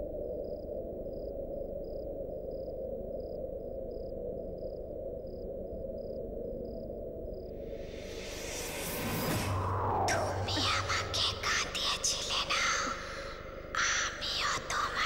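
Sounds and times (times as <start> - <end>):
cricket chirping: 0.0 - 15.0
low steady rumble: 7.5 - 14.8.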